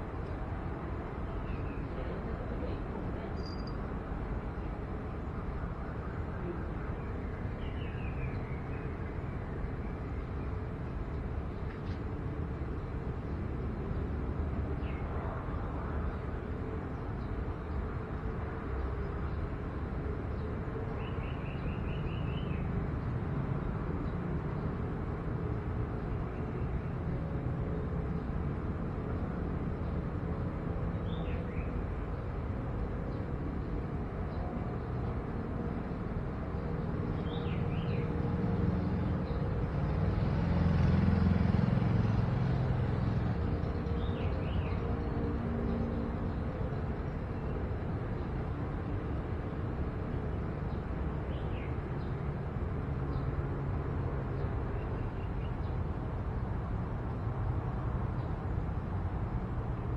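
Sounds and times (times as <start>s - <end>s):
low outdoor rumble: 0.0s - 7.8s
faint bird chirps: 3.4s - 3.8s.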